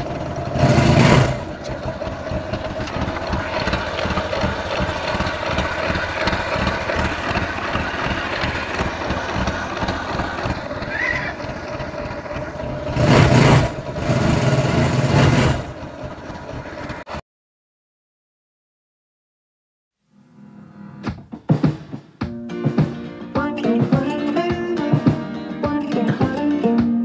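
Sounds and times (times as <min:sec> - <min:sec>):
motorcycle engine idling: 0:00.0 - 0:17.2.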